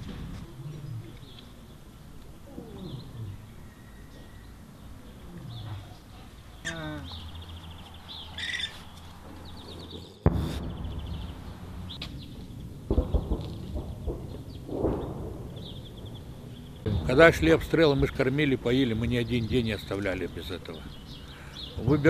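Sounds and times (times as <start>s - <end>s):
distant shelling booms: 0.0s - 0.7s, 10.2s - 20.9s
songbirds chirping and trilling: 0.0s - 22.0s
sudden loud bang: 10.2s - 18.2s.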